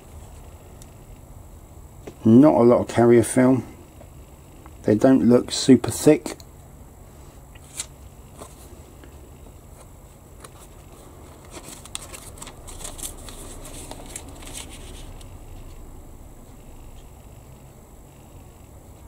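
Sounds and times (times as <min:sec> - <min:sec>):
faint steady hum: 0:00.0 - 0:19.0
paper rustling and crinkling: 0:07.6 - 0:08.8, 0:09.7 - 0:15.8.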